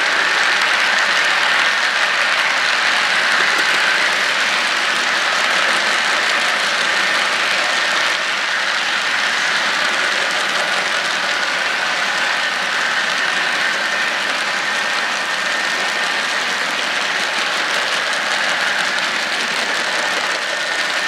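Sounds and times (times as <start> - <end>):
model train cars rolling on track: 0.0 - 21.0
wheels clicking over track joints: 0.0 - 21.0.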